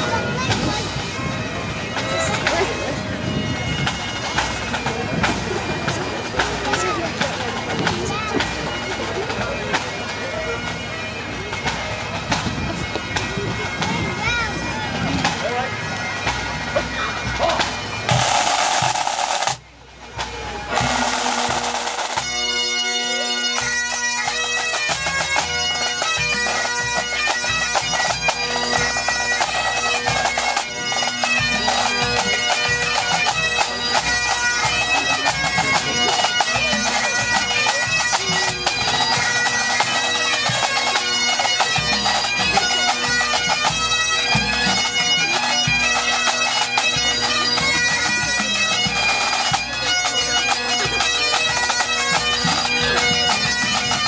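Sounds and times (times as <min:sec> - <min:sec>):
bagpipes with drones: 0:00.0 - 0:54.0
snare and bass drums beating: 0:16.3 - 0:19.6.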